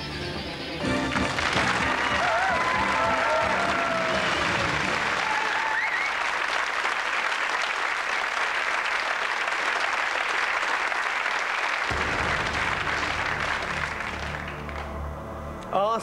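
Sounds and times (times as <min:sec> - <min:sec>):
theme music: 0:00.0 - 0:05.3, 0:11.9 - 0:16.0
audience applauding: 0:01.0 - 0:15.0.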